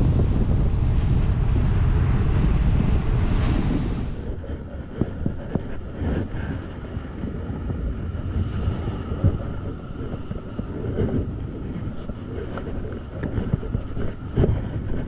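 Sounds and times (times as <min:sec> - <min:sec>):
surf washing up: 0:00.0 - 0:15.0
wind buffeting microphone: 0:00.0 - 0:15.0.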